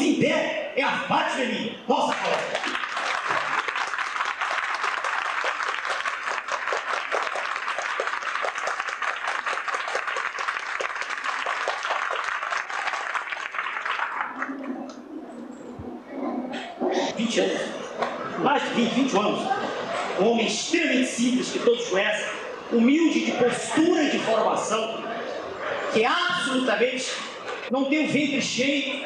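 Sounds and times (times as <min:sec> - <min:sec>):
crowd applauding: 0:02.0 - 0:15.0.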